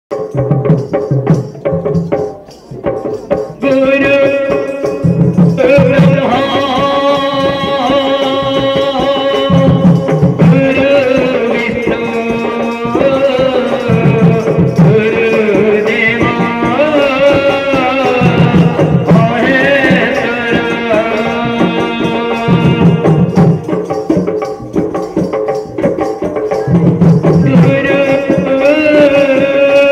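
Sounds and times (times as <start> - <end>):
drum accompaniment: 0.1 - 29.9
men singing a chant: 3.6 - 23.6, 27.4 - 29.9.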